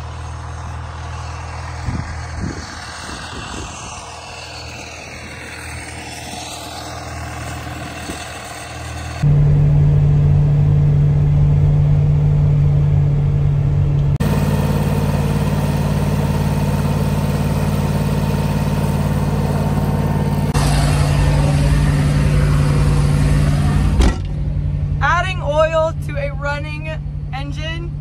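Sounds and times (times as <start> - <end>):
irrigation pump engine running: 0.0 - 25.0
utility vehicle engine driving: 0.0 - 28.0.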